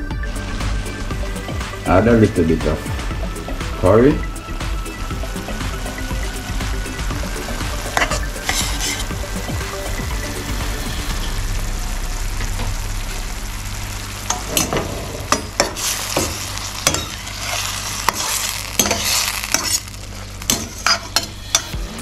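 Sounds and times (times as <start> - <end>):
vegetables sizzling in oil: 0.4 - 22.0
metal spatula scraping a pan: 7.9 - 9.3, 14.3 - 22.0.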